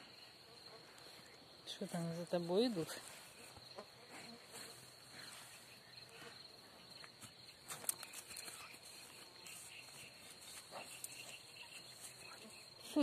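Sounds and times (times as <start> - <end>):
insects chirring: 0.0 - 13.0
cow chewing grass: 8.0 - 12.4.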